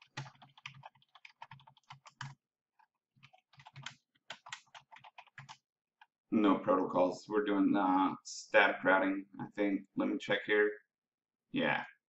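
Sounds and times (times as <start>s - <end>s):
typing on computer keyboard: 0.0s - 5.6s.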